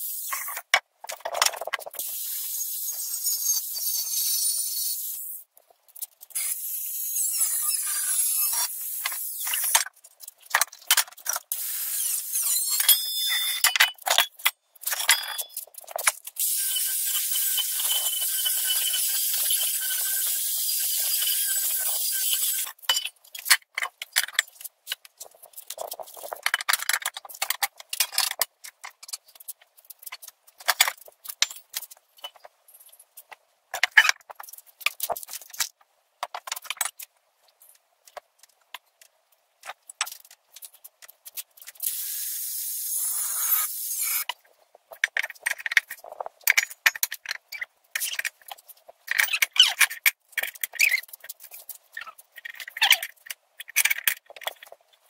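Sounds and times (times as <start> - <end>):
steel parts clinking and rattling: 12.5 - 33.0, 44.9 - 54.8.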